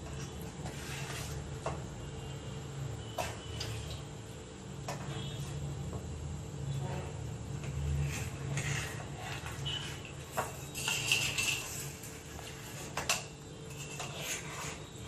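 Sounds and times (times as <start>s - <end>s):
knife scraping metal plate: 0.6s - 1.4s, 7.8s - 15.0s.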